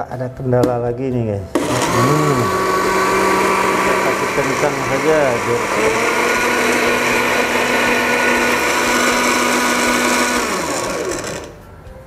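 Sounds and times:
blender running at high speed: 1.6 - 11.6.

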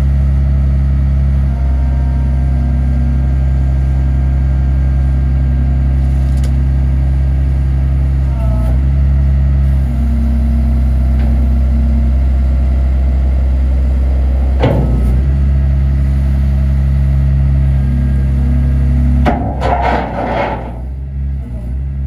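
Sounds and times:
wheel loader diesel engine running: 0.0 - 22.0.

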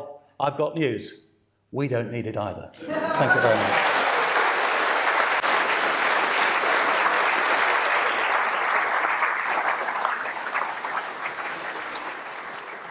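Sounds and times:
audience applauding: 2.8 - 12.9.

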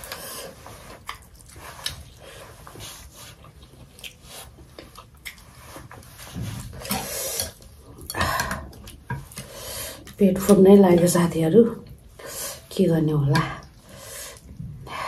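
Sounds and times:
chewing and wet mouth sounds: 0.0 - 15.0.

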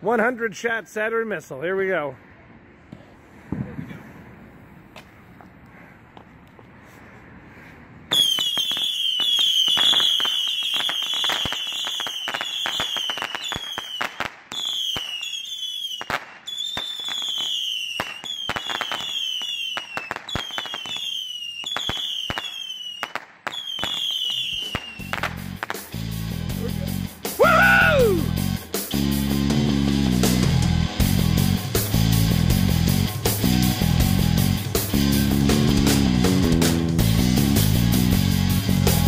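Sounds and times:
firework pops: 8.1 - 15.3, 16.0 - 25.9
whistling missiles: 8.1 - 26.0.

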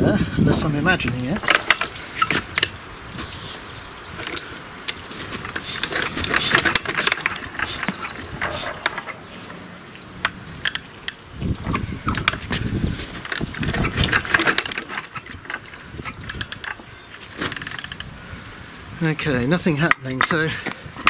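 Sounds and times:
engine cranked by hand clattering: 0.6 - 2.8, 4.2 - 11.2, 12.1 - 18.1.

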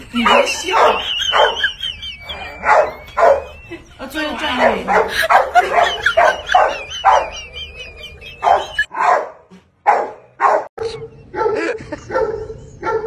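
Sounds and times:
dog barking: 0.2 - 1.7, 2.6 - 3.6, 4.6 - 7.4, 8.4 - 13.0.

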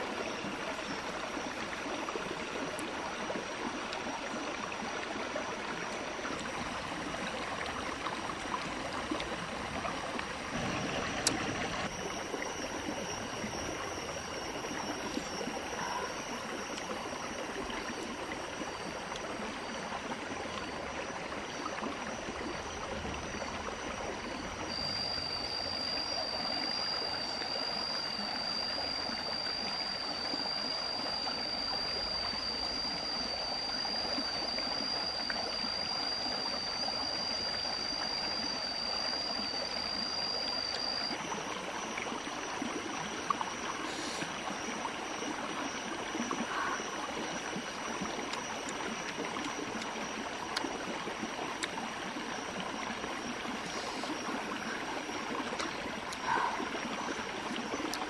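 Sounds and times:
stream running over stones: 0.0 - 58.0
thin high tone: 5.6 - 50.3.

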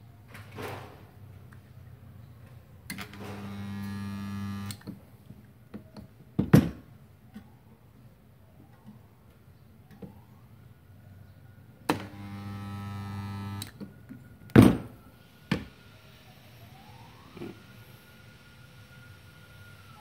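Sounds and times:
welder mains hum: 3.1 - 4.8, 12.0 - 13.7.

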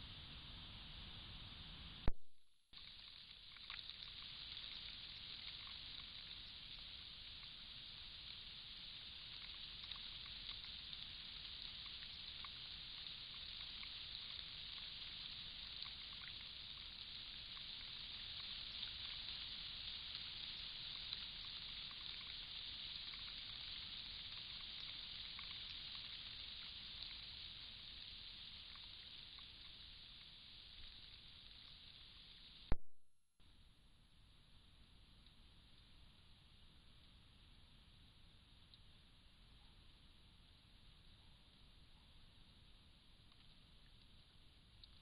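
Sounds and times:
high hiss: 0.0 - 2.1, 2.8 - 32.8
faint ticks: 2.8 - 32.9, 35.1 - 45.0.

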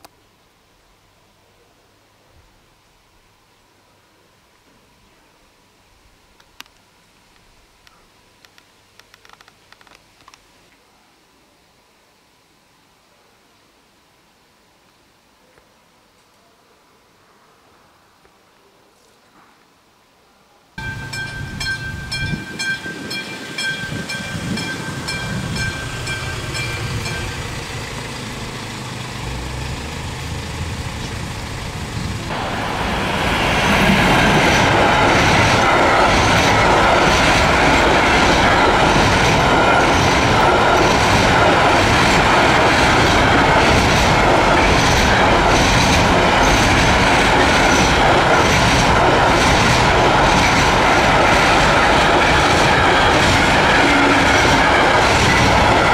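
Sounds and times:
level crossing warning bell: 20.8 - 28.6
train wheels clattering over rail joints: 33.8 - 55.9.

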